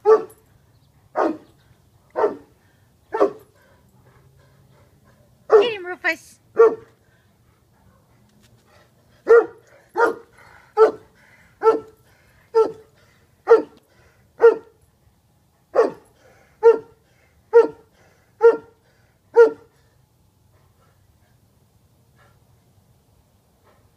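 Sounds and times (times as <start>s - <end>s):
dog barking: 0.0s - 0.3s, 1.2s - 1.4s, 2.2s - 2.5s, 3.2s - 3.4s, 6.6s - 6.9s, 9.3s - 10.2s, 10.8s - 11.0s, 11.6s - 11.9s, 12.6s - 12.8s, 13.5s - 13.8s, 14.4s - 14.7s, 15.8s - 16.0s, 16.6s - 16.9s, 17.5s - 17.8s, 18.4s - 18.7s, 19.4s - 19.7s.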